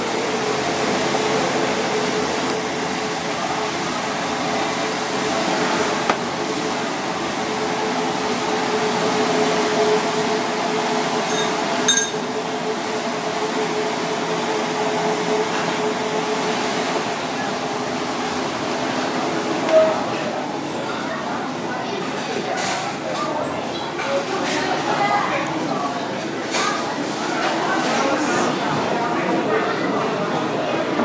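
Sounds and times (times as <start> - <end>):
kitchen equipment hum: 0.0 - 20.8
metallic clink: 11.3 - 12.2.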